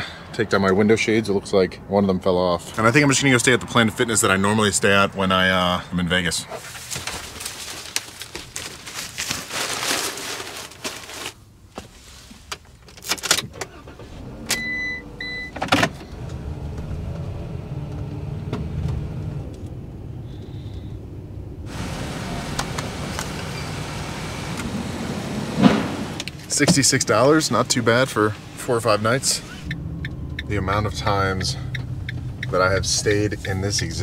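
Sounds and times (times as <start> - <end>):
fabric shades rustling: 6.5 - 12.8
van engine running: 13.6 - 34.0.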